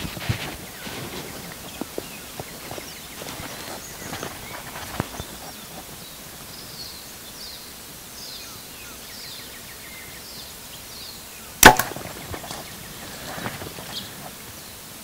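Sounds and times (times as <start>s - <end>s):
bow string cracking: 11.6s - 12.6s.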